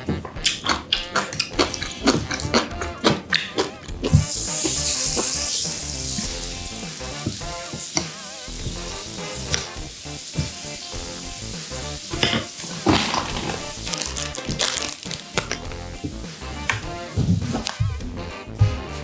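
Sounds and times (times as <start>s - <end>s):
meat sizzling on grill: 4.0s - 17.7s.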